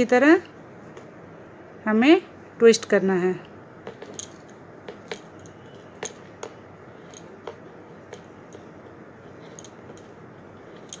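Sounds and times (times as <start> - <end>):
wire twisting clicks and ticks: 3.9 - 8.7, 9.4 - 11.0.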